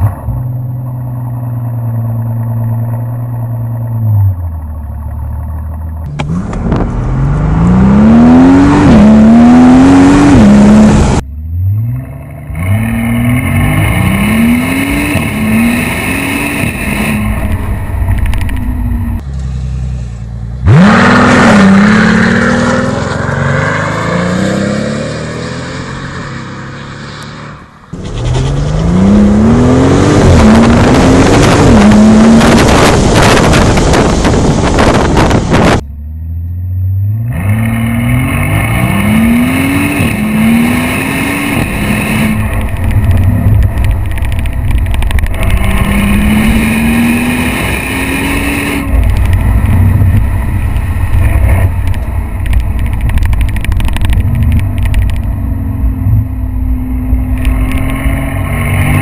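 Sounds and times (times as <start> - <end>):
car engine idling and accelerating: 0.0 - 59.0
gear upshifts: 37.2 - 59.0.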